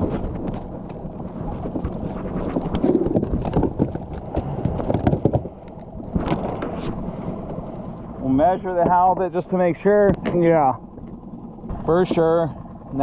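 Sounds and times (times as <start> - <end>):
wind rush on microphone: 0.0 - 7.6.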